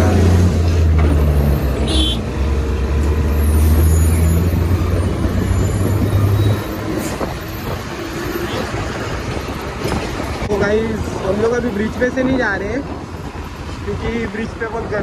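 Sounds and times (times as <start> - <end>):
bus and truck engines droning: 0.0 - 15.0
wind buffeting microphone: 4.5 - 15.0.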